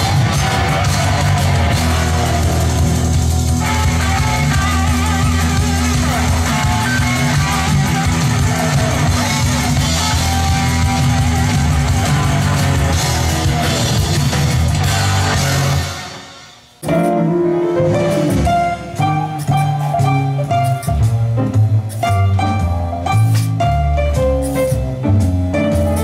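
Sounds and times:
rock music from tape deck: 0.0 - 26.0.

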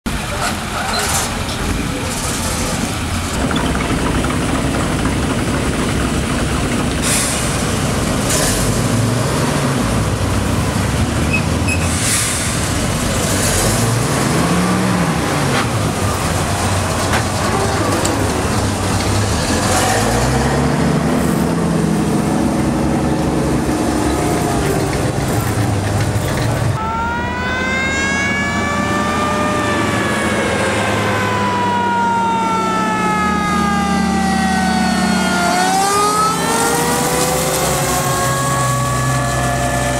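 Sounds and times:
truck driving past: 0.1 - 39.9
truck engine revving: 0.1 - 39.9
short air hisses: 11.8 - 12.6.

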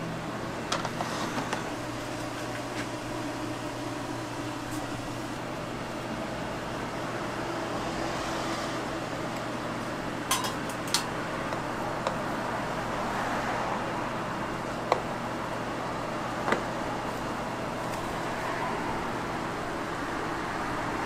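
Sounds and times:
street stall background hum: 0.0 - 21.0
metal utensils clinking: 10.3 - 11.1.

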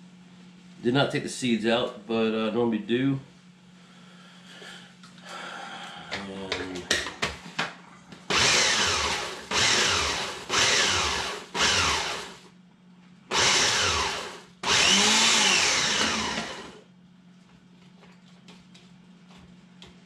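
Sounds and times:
food processor chopping: 8.3 - 12.4, 13.3 - 16.8.

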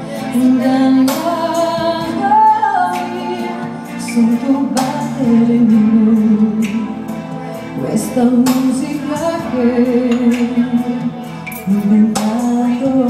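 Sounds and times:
keyboard accompaniment: 0.0 - 13.0
woman singing a ballad: 0.0 - 13.0.

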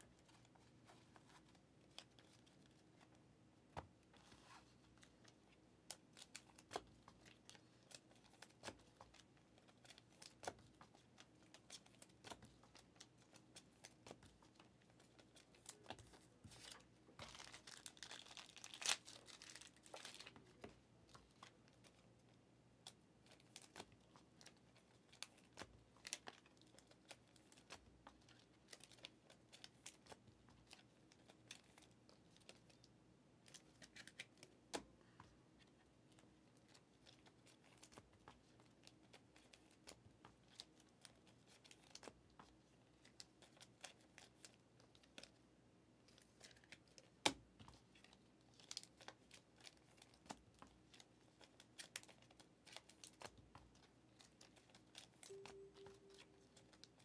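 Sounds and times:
plastic packaging crinkling: 13.8 - 22.0.

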